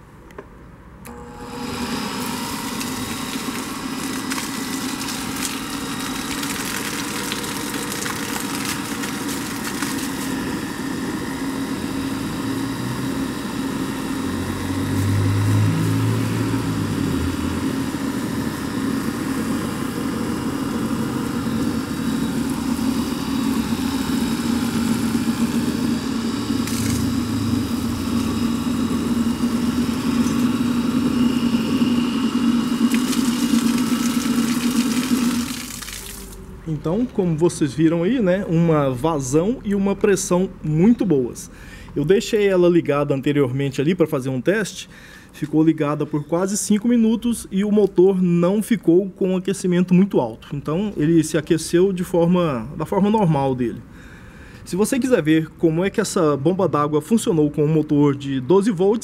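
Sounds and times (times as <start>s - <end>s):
motor driving water pump: 1.0s - 43.0s.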